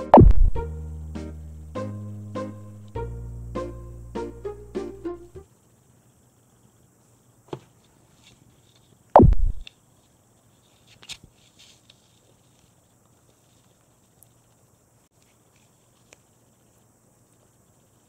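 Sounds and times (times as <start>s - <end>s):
dull thump on camera: 0.2s - 0.6s.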